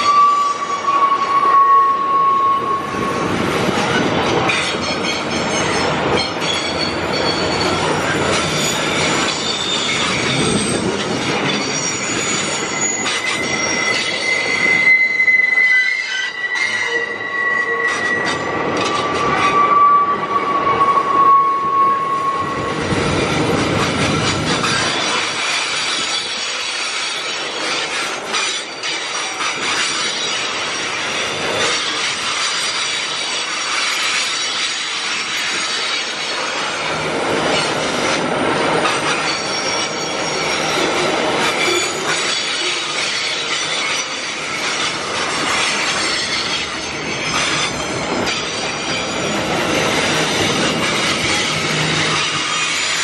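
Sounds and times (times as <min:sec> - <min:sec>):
high-pitched wheel squeal: 0:00.0 - 0:03.4, 0:04.4 - 0:22.9, 0:38.8 - 0:53.0
freight wagons rumbling on track: 0:02.1 - 0:15.7, 0:16.4 - 0:53.0.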